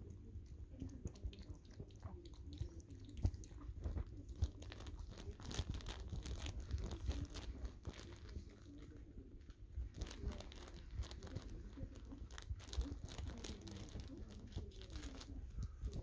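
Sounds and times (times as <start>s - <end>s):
puppy lapping water: 0.0s - 5.5s
small clicks and crinkles: 0.0s - 16.0s.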